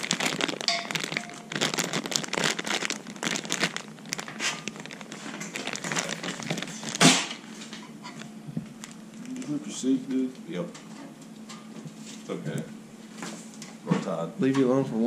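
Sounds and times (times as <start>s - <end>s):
plastic packaging crinkling: 0.0s - 9.9s.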